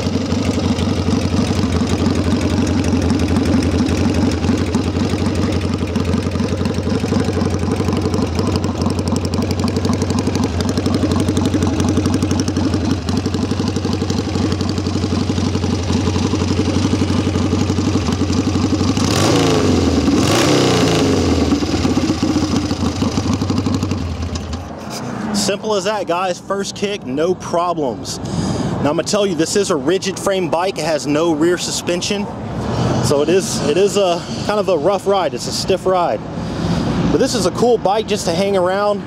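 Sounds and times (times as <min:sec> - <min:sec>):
motorcycle engine idling: 0:00.0 - 0:24.8
engine revving: 0:00.0 - 0:25.8.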